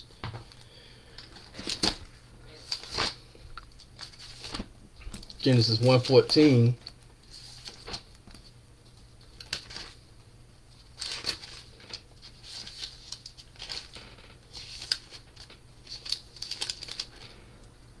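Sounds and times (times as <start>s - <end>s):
paper pages rustling: 1.2s - 3.2s, 3.9s - 6.6s, 7.2s - 10.0s, 10.8s - 17.4s.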